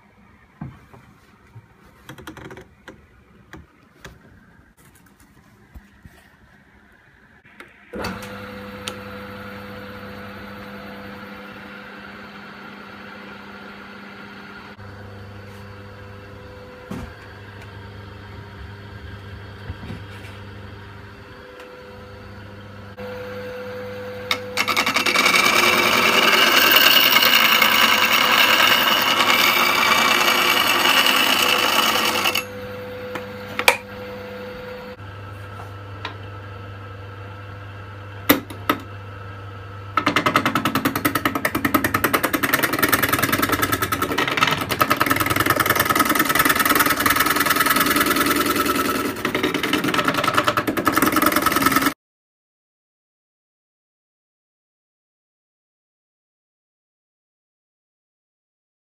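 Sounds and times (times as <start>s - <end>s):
lathe motor humming: 8.0s - 36.8s, 39.9s - 52.0s
gouge cutting spinning wood: 24.3s - 32.5s, 40.0s - 52.0s.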